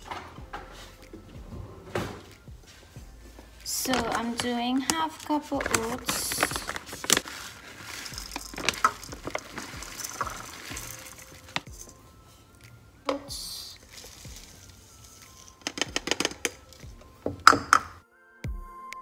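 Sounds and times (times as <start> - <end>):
plastic pouch crinkling: 3.7 - 12.0, 13.5 - 18.0
measuring cup scooping: 5.6 - 11.7
dry oats pouring: 5.6 - 12.0, 13.4 - 17.8.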